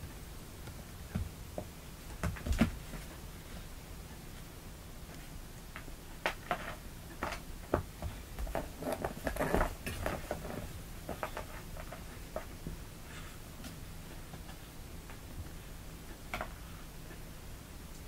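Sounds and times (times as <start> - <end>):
kittens scuffling on carpet: 5.1 - 14.6.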